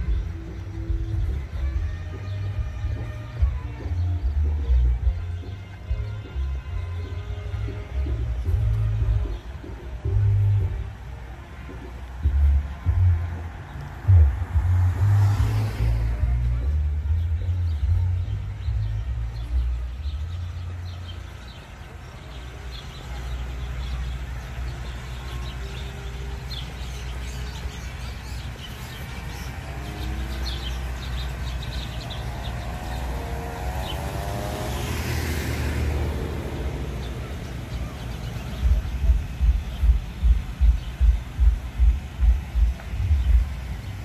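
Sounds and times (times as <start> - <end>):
thumping bass beat: 0.0 - 21.3, 26.9 - 44.0
birds chirping: 0.0 - 44.0
steady low rumble: 8.2 - 21.8, 27.1 - 44.0.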